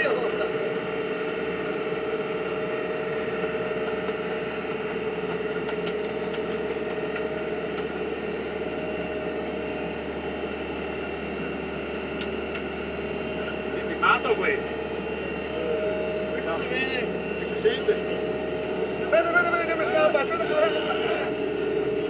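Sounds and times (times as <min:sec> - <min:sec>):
boat engine droning: 0:00.0 - 0:22.0.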